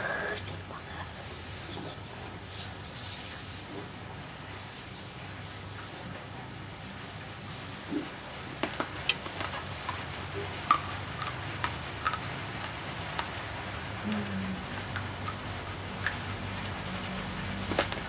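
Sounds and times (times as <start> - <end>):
rice grains crunching while chewed: 7.9 - 16.7.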